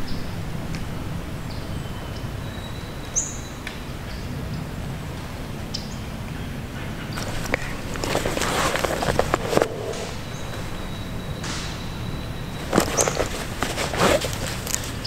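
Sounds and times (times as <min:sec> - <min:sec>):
low steady rumble: 0:00.0 - 0:15.0
rustling and small clicks: 0:07.2 - 0:15.0
high bird chirps: 0:09.7 - 0:13.4.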